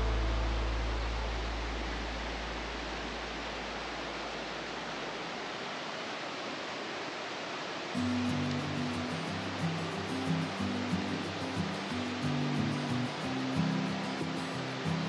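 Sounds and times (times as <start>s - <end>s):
bass-heavy music: 0.0s - 3.0s
steady rushing noise: 0.0s - 15.0s.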